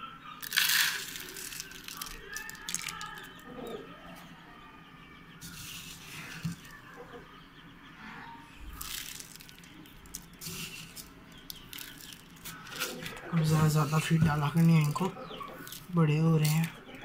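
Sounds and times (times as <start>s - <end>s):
dry feed rustling: 0.4s - 3.4s, 5.4s - 6.8s, 8.7s - 16.8s.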